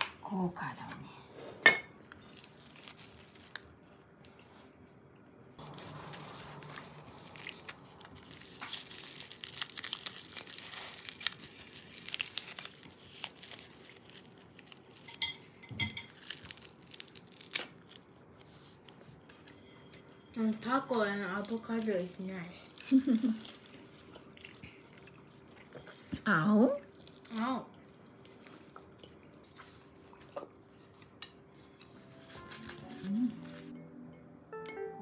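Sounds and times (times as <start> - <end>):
seaweed sheet crinkling: 5.6 - 15.2, 16.1 - 19.0, 20.3 - 24.6, 29.5 - 33.7.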